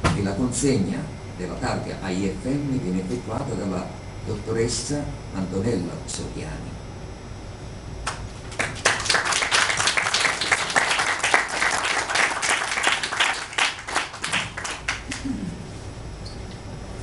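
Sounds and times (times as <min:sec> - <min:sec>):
audience applauding: 0:08.1 - 0:15.3.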